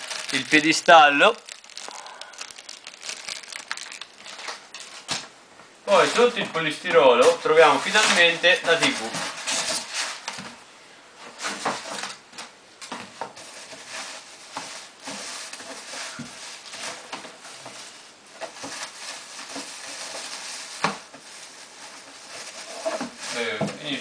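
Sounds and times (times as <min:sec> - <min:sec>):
plastic bag rustling and crinkling: 0:00.0 - 0:05.3, 0:07.2 - 0:10.4, 0:13.3 - 0:24.0.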